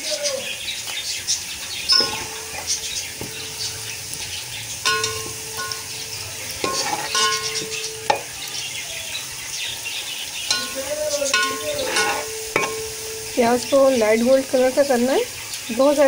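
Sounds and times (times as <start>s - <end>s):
onions sizzling in oil: 0.0s - 16.0s
spoon knocking on pot: 1.9s - 3.8s, 4.8s - 8.4s, 10.5s - 13.7s
metal spoon scraping pot: 1.9s - 4.2s, 4.8s - 8.4s, 10.5s - 13.7s.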